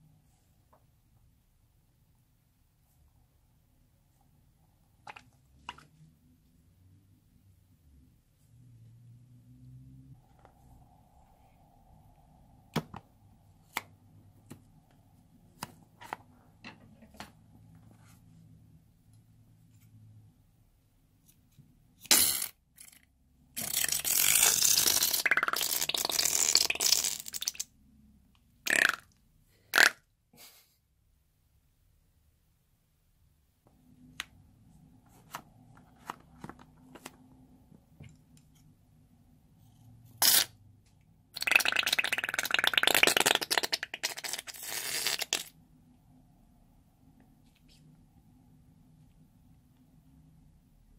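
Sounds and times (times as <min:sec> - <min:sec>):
rubber balloon squeezed: 0:22.0 - 0:22.6, 0:23.6 - 0:27.6, 0:28.7 - 0:29.1, 0:29.7 - 0:30.0, 0:40.2 - 0:40.6, 0:41.4 - 0:45.6.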